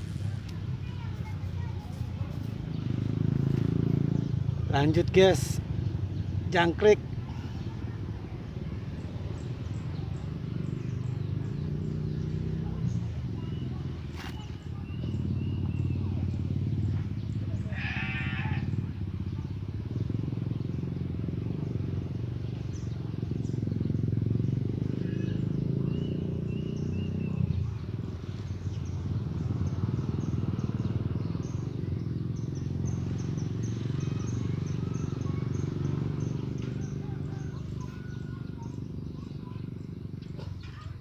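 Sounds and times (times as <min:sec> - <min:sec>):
goat bleating: 0:17.6 - 0:18.7.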